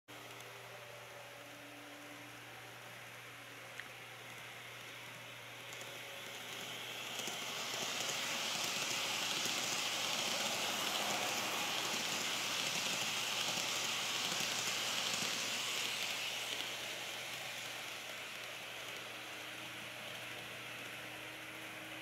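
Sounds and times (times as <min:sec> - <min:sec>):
model train wheels rattling: 0:05.6 - 0:21.1.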